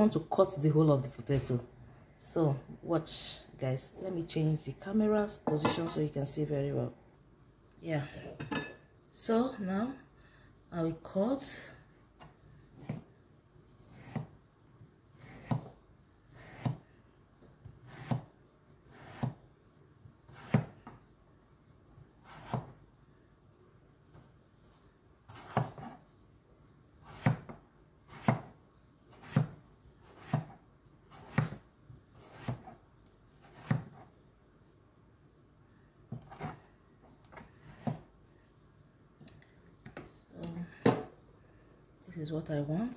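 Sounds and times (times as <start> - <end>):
knife slicing potato: 13.8 - 14.4, 15.1 - 16.9, 17.6 - 19.4, 20.2 - 20.9, 22.2 - 22.8, 25.3 - 26.0, 27.0 - 32.8, 33.4 - 34.1.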